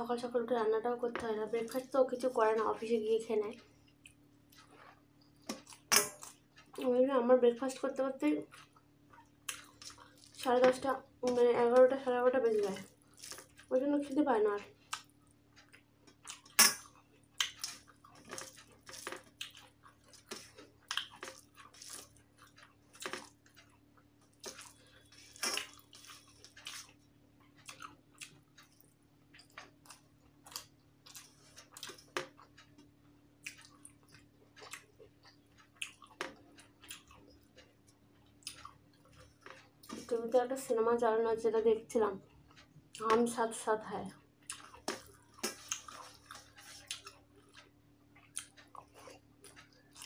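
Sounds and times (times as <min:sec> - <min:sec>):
person chewing with lip smacks: 0:03.8 - 0:06.9, 0:08.4 - 0:10.4, 0:14.7 - 0:40.2, 0:44.4 - 0:50.0.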